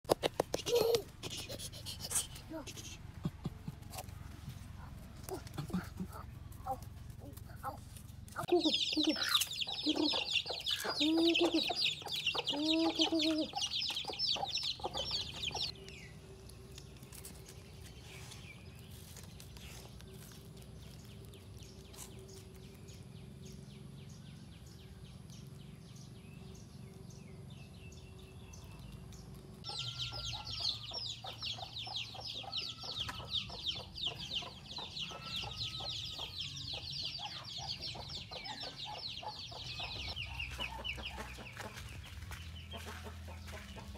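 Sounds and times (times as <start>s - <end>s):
chickens clucking: 0.1s - 15.8s, 28.7s - 43.9s.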